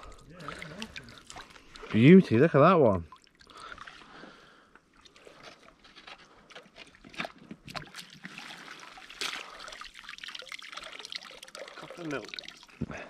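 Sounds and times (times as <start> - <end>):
water streaming through mesh: 0.0 - 5.7, 6.8 - 12.8
splashing and sloshing water: 0.0 - 13.0
net sweeping through water: 7.8 - 11.8.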